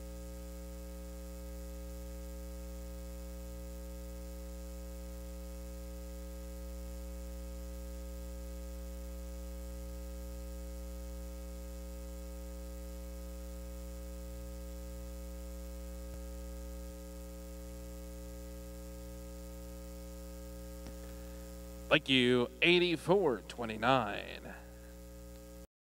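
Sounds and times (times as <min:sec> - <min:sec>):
electrical mains hum: 0:00.0 - 0:25.7.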